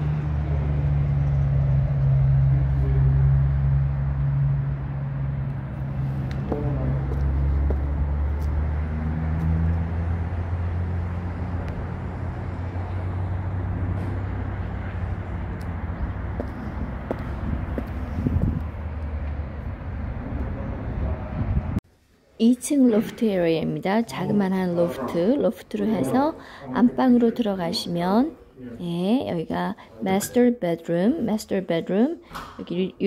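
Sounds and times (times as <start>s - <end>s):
low motor drone: 0.0s - 21.8s.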